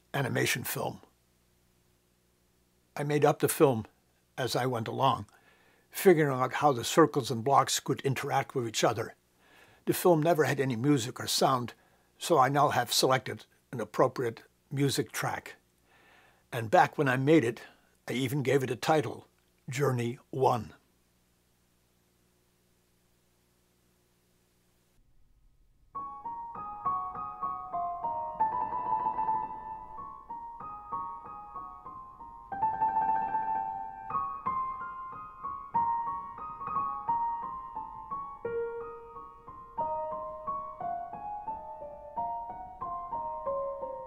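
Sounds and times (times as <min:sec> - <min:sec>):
piano melody: 0:26.0 - 0:44.0.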